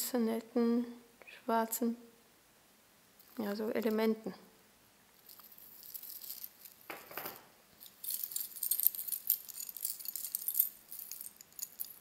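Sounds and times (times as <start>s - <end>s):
metal chains jingling: 5.2s - 6.9s, 7.8s - 12.0s.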